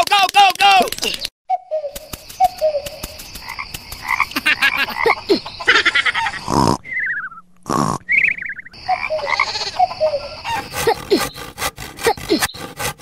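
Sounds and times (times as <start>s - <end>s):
scattered clicks: 0.0s - 1.3s
frogs croaking: 2.1s - 6.6s, 7.9s - 11.3s.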